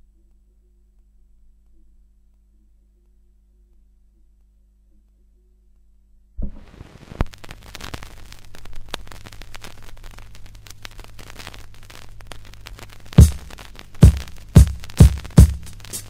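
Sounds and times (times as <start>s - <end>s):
vinyl surface noise crackles: 6.4s - 16.0s
loud low music beat: 13.2s - 16.0s.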